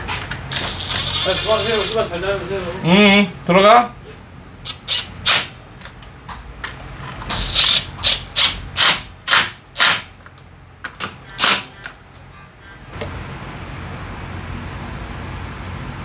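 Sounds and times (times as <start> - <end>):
impact wrench bursts: 0.5 - 2.1, 4.6 - 5.6, 7.2 - 10.2, 11.3 - 11.8.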